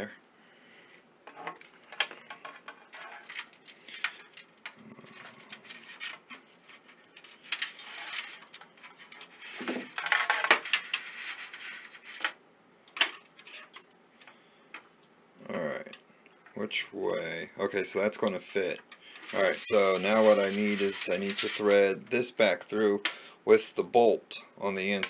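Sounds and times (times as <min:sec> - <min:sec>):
rustling scrape: 0:01.3 - 0:12.4, 0:19.0 - 0:22.0.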